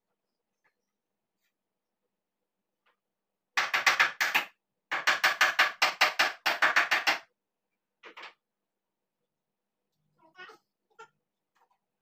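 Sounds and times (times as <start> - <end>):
rapid knocking on wooden frame: 3.6 - 7.3.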